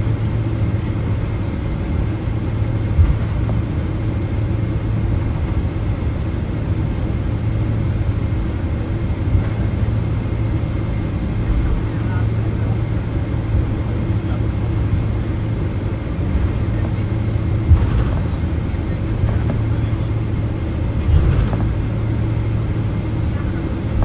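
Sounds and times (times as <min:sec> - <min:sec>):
jet engines idling: 0:00.0 - 0:24.0
low thump: 0:02.9 - 0:03.6, 0:17.6 - 0:18.6.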